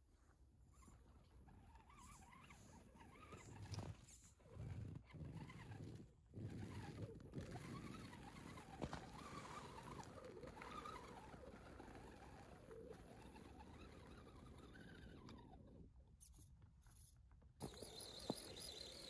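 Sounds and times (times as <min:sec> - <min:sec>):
electric motor and gears whining: 0:17.6 - 0:19.0.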